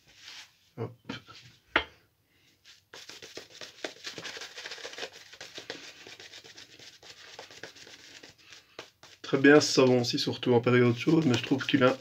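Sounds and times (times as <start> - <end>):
shaving brush rubbing lather: 2.7 - 12.0.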